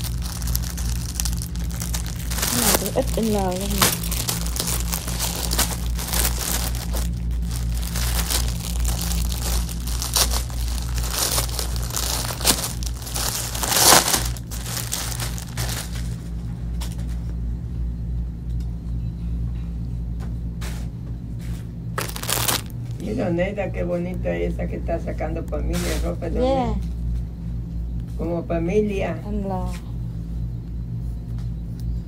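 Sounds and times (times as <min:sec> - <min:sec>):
plastic bags crinkling: 0:00.0 - 0:17.0, 0:22.0 - 0:23.0
steady low hum: 0:00.0 - 0:32.0.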